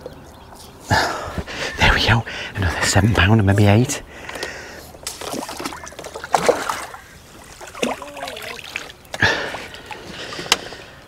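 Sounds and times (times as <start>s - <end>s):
water splashing and trickling: 4.4s - 11.0s.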